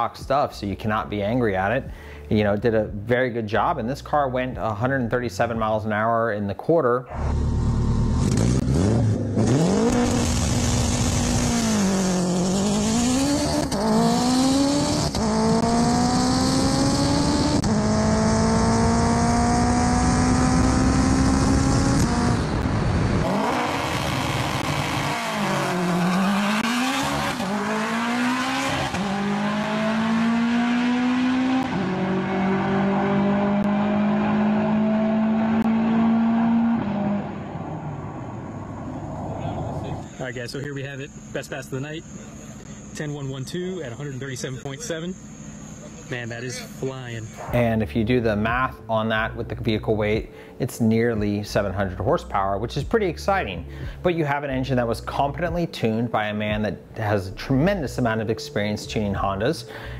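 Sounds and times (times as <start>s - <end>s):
turbocharged car engine revving: 7.1s - 40.3s.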